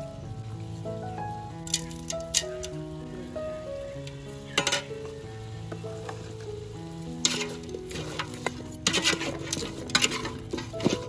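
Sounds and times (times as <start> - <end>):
utensil scraping cooking pan: 4.4 - 5.1, 6.0 - 11.0.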